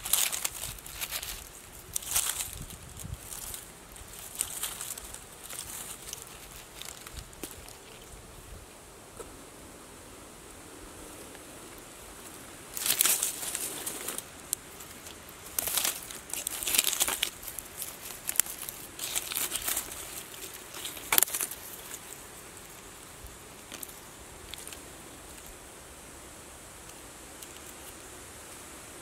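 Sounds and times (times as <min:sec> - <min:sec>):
twig snapping: 0:00.0 - 0:08.1, 0:12.8 - 0:22.1
leaf litter rustling and crackling: 0:00.0 - 0:08.6, 0:10.4 - 0:25.8.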